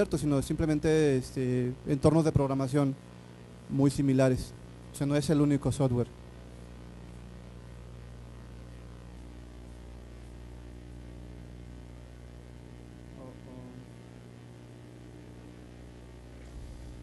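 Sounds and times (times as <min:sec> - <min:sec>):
electrical mains hum: 0:00.0 - 0:17.0
faint voice: 0:13.1 - 0:13.9.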